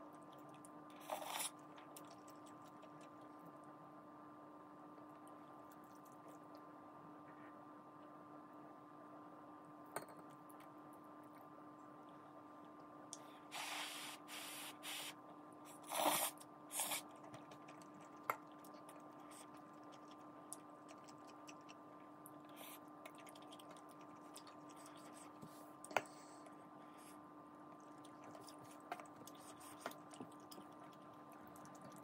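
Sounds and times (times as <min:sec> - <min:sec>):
faint steady hum: 0:00.0 - 0:32.0
person slurping noodles: 0:15.8 - 0:17.0.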